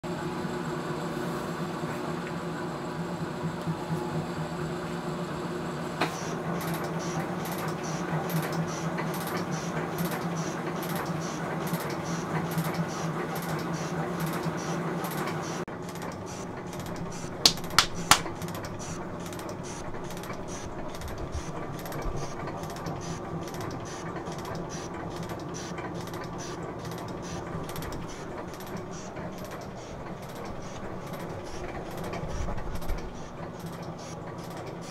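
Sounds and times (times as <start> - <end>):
metal shaper machine hum: 6.1 - 34.9
hand claps: 17.4 - 18.3.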